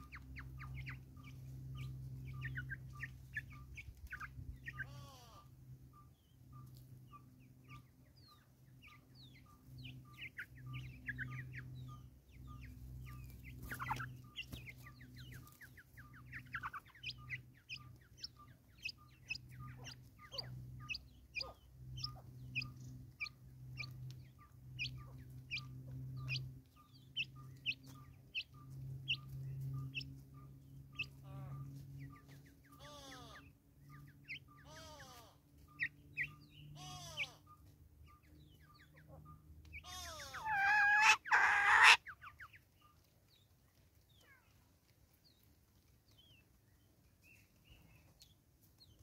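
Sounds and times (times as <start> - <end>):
low hum: 0.0 - 40.4
bird chirping and clucking: 0.0 - 44.3
birds pecking at wood: 12.7 - 26.6.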